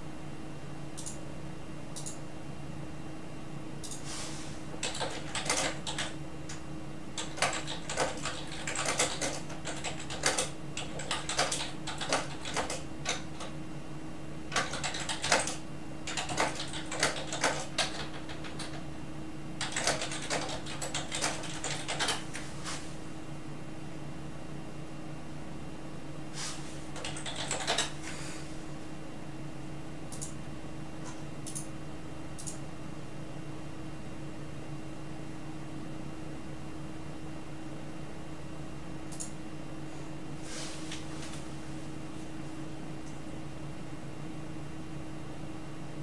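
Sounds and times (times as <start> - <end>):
steady low hum: 0.0 - 46.0
typing on computer keyboard: 4.8 - 6.6, 7.2 - 13.5, 14.5 - 18.8, 19.6 - 22.3, 27.0 - 28.0.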